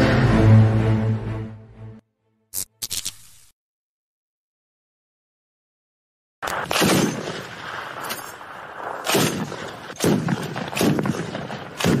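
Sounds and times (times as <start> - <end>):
artillery blasts: 6.4 - 12.0.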